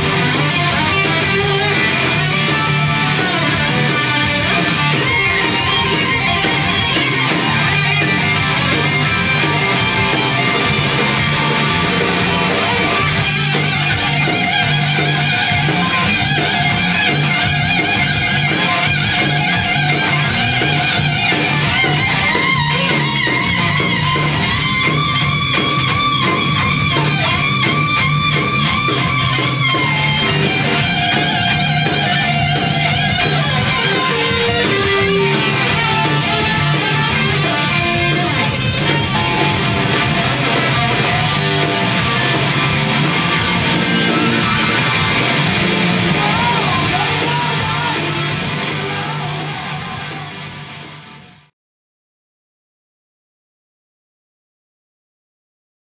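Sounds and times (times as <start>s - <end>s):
live rock band playing: 0.0s - 51.5s.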